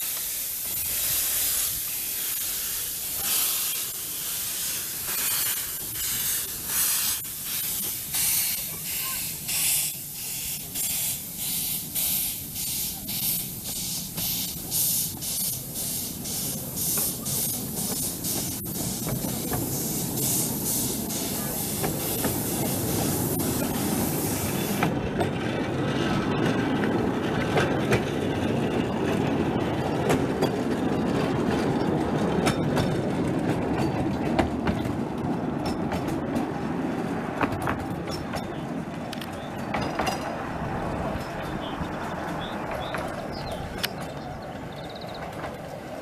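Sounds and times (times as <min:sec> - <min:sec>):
steam hissing from locomotive: 0:00.0 - 0:25.0
train coaches rolling rumble: 0:00.0 - 0:46.0
wheels clicking on track: 0:00.0 - 0:46.0.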